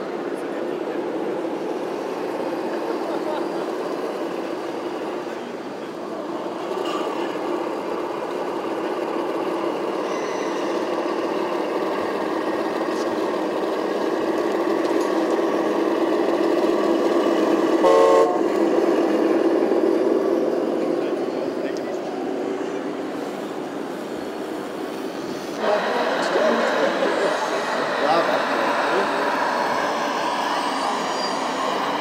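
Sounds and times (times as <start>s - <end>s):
model truck electric motors whirring: 1.7s - 20.6s.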